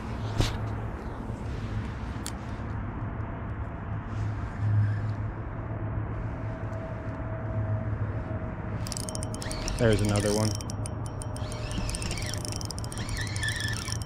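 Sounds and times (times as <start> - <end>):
low mechanical hum: 0.0 - 14.0
faint thin whine: 8.8 - 14.0.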